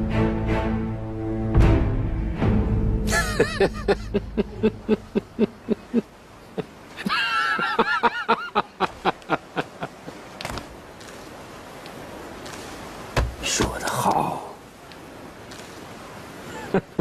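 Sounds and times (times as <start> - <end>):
hearty laughter: 3.1 - 10.0, 16.5 - 17.0.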